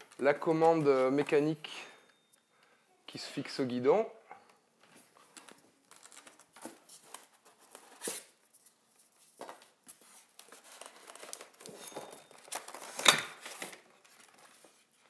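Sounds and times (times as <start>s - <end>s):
foam and plastic wrap rustling: 5.2s - 15.0s.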